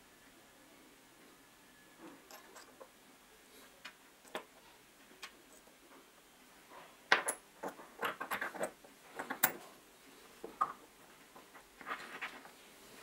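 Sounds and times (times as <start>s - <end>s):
small metal parts clinking: 2.2s - 2.9s.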